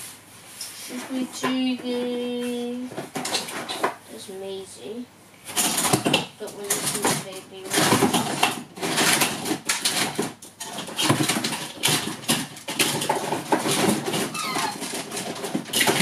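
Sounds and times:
rummaging in box of toys: 5.5s - 16.0s
short squeaks: 14.3s - 14.8s.

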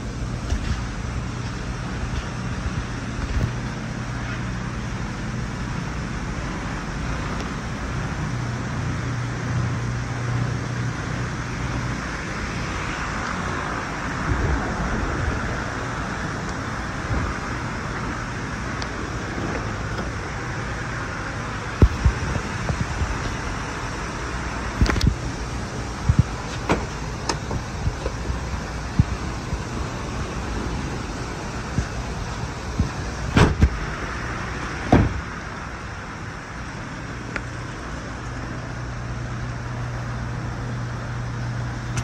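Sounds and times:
low mechanical hum: 0.0s - 42.0s.

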